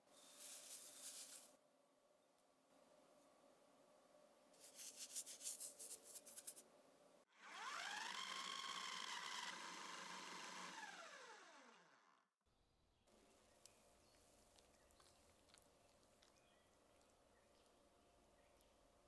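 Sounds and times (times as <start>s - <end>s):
food processor motor whining: 7.4s - 12.3s.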